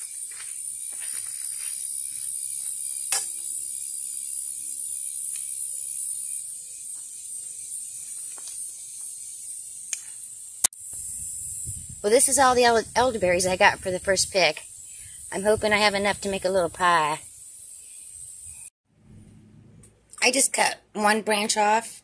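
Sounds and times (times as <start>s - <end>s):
insects buzzing: 0.0s - 18.7s.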